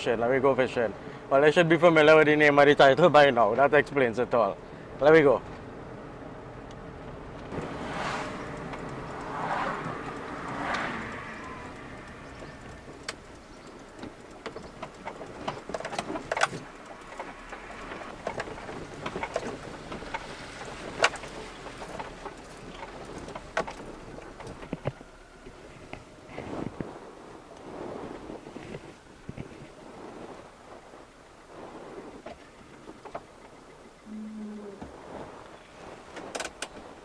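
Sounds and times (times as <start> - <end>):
van engine running: 0.0 - 37.0
cab rattling on rough road: 6.9 - 34.1, 34.7 - 37.0.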